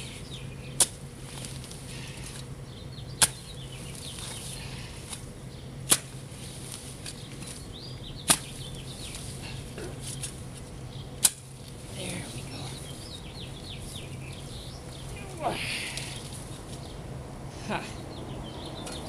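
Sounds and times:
faint birds chirping: 0.0s - 19.0s
shovel hitting soil: 0.8s - 2.4s, 3.2s - 5.2s, 5.8s - 7.6s, 8.2s - 9.4s, 11.2s - 11.5s.

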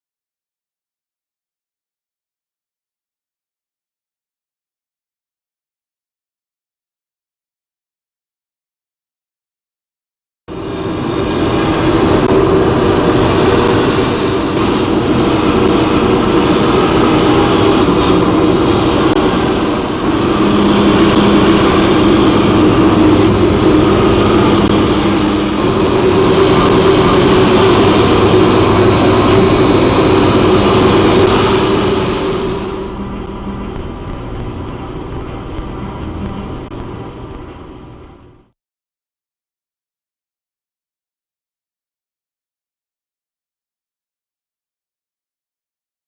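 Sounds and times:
router spindle milling foam: 10.7s - 38.1s.

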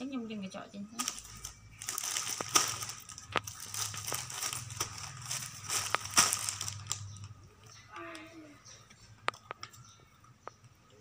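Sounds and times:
plastic bag crinkling: 1.0s - 7.8s.

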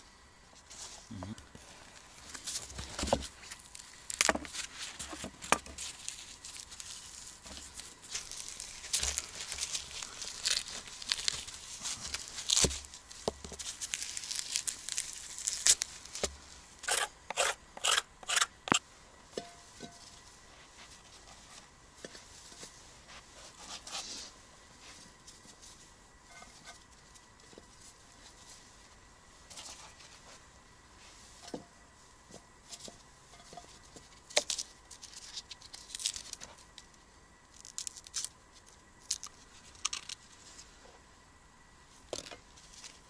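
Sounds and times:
hands tearing and rubbing fish: 5.8s - 16.2s
knife scraping frozen fish: 16.8s - 18.8s.

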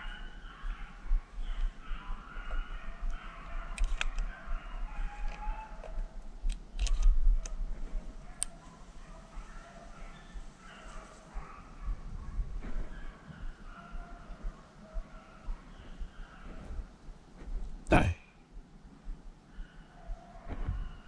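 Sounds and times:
dogs baying in the distance: 0.0s - 21.0s
sharp clicks and snaps: 3.1s - 4.3s, 5.2s - 7.6s.

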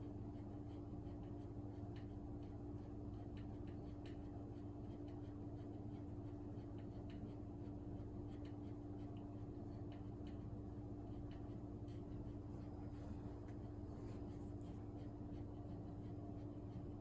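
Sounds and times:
steady low hum: 0.0s - 17.0s
light ticks: 0.8s - 16.9s.

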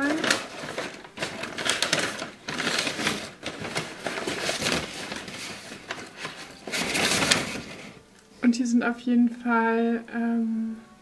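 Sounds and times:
packing paper crinkling: 0.0s - 8.0s.

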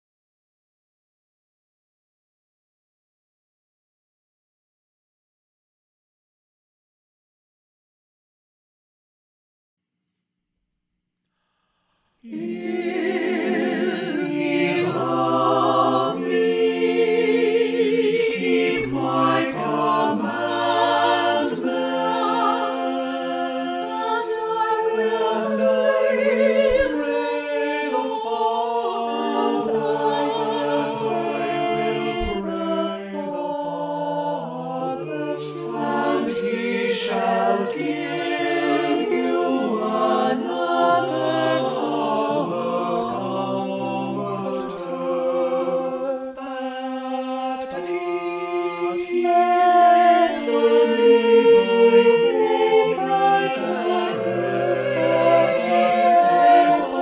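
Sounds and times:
unaccompanied choir singing: 12.2s - 57.0s.

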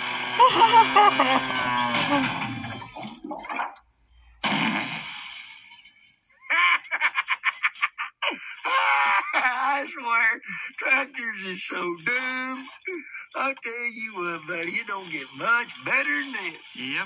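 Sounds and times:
cartoon character rapid laughter: 0.4s - 2.2s, 6.4s - 9.9s
cartoon sound effects: 0.4s - 2.7s.

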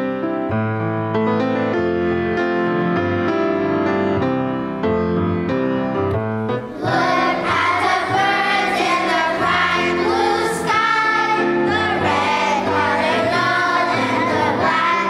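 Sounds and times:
grand piano playing: 0.0s - 15.0s
children's choir singing: 6.7s - 15.0s.

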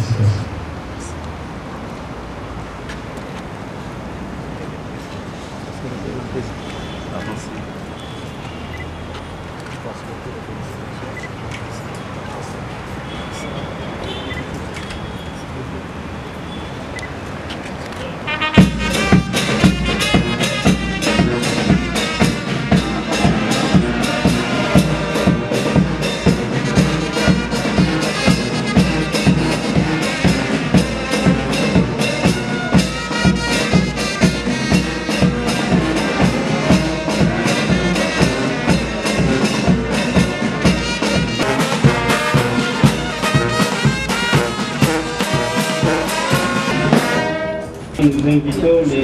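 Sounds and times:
brass band playing: 18.2s - 48.0s
steady drum beat: 18.3s - 47.6s.

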